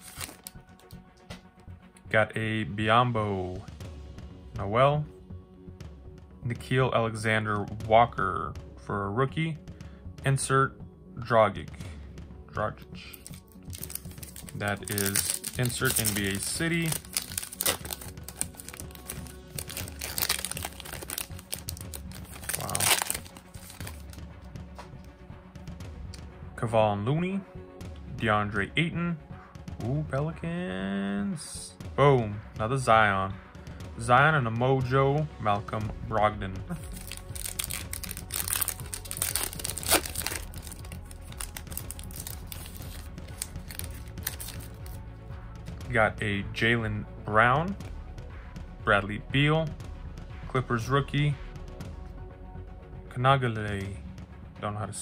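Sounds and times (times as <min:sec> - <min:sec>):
foil wrapper crinkling: 0:00.0 - 0:00.6, 0:13.2 - 0:24.2, 0:36.8 - 0:45.0
quiet background music: 0:00.0 - 0:55.0.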